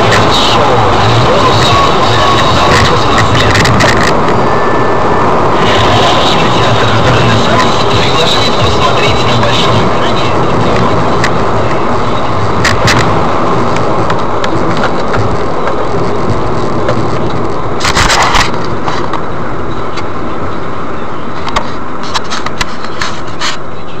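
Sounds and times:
car tyres on wet road: 0:00.0 - 0:24.0.

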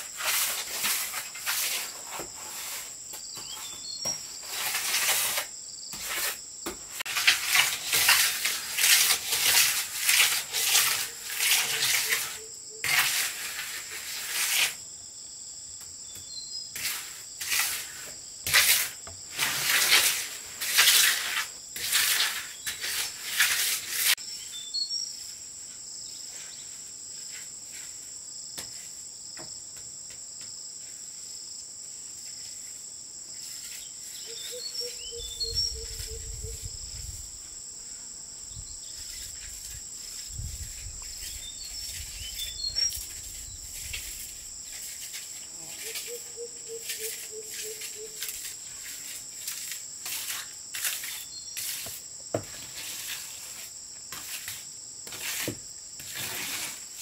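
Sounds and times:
loud rough strokes: 0:00.0 - 0:03.0, 0:04.4 - 0:14.8, 0:16.8 - 0:24.2, 0:39.0 - 0:57.0
insects droning: 0:00.0 - 0:57.0
bird chirps: 0:34.1 - 0:36.7.

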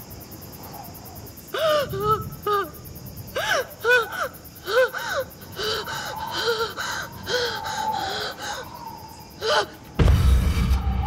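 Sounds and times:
deep boom: 0:10.0 - 0:11.0
steady high drone: 0:10.0 - 0:11.0.

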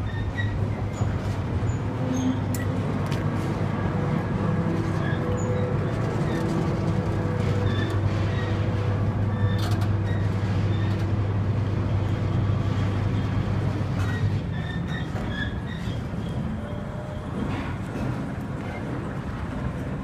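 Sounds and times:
low machinery drone: 0:00.0 - 0:20.0
faint high squeaks: 0:14.0 - 0:17.6.

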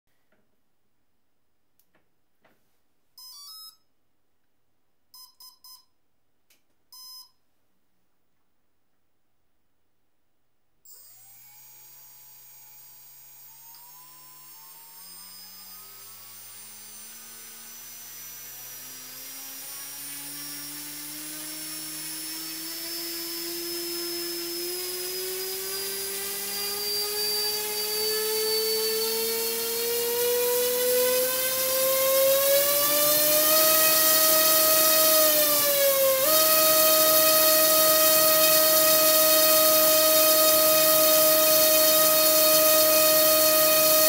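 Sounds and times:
electric motor whine: 0:10.9 - 0:44.0.

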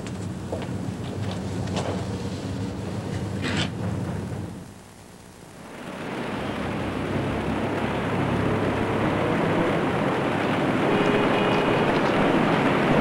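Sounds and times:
city street traffic: 0:00.0 - 0:04.7, 0:05.6 - 0:13.0
car horn tone: 0:10.6 - 0:13.0.

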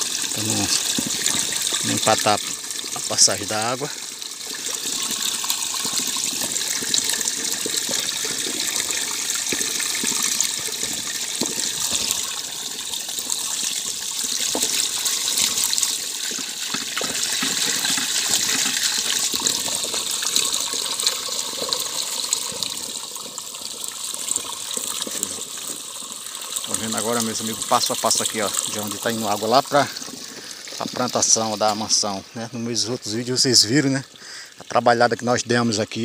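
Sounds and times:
water pouring into full barrel: 0:00.0 - 0:36.0.

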